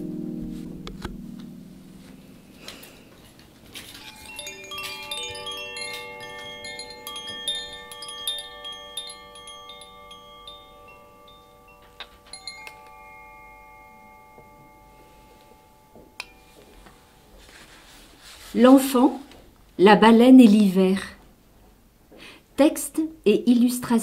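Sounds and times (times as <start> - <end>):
bell-like chime music: 1.0 - 17.2.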